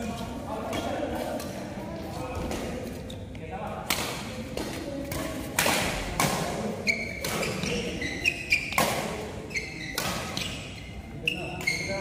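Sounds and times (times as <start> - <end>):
shoes squeaking on court floor: 0.0 - 3.5, 6.4 - 12.0
rackets hitting shuttlecock: 3.8 - 10.5.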